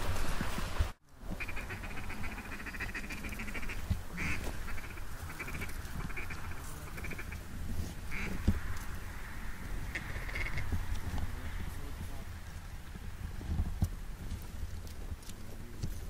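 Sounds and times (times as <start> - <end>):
duck quacking: 1.3 - 7.4, 8.1 - 8.5, 9.9 - 10.7.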